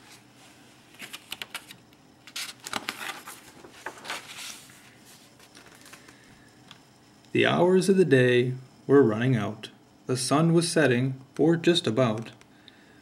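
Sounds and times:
book pages turning: 0:00.9 - 0:06.0.

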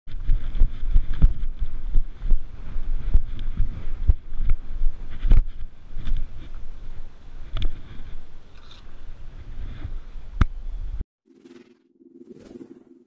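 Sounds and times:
footsteps on rock and sand: 0:00.1 - 0:10.1
wind rumbling on microphone: 0:00.1 - 0:11.0.

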